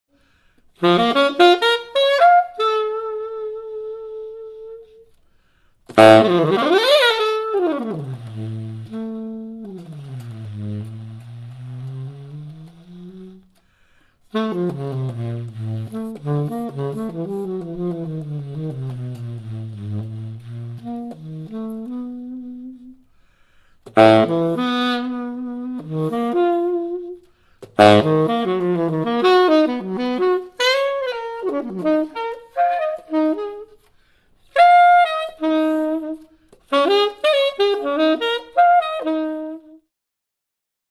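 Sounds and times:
tenor saxophone jazz playing: 0.2s - 39.9s.

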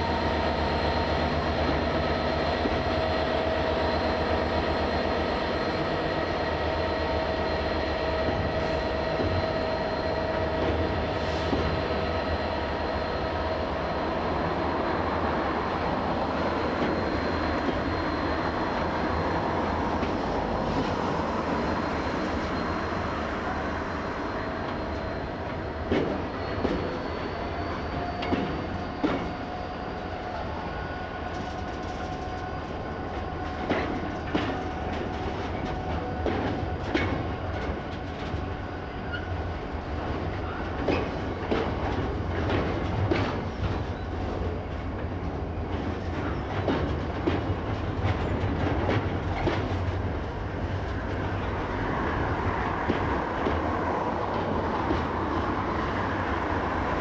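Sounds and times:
diesel locomotive engine running: 0.0s - 57.0s
train wheels clacking over rail joints: 24.6s - 30.2s, 31.2s - 57.0s.

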